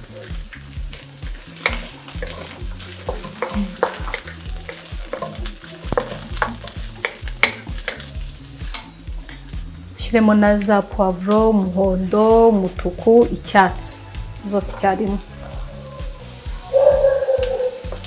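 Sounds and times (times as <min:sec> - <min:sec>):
vegetables sizzling in oil: 0:00.0 - 0:18.0
wooden spatula clicks and taps: 0:01.6 - 0:08.1.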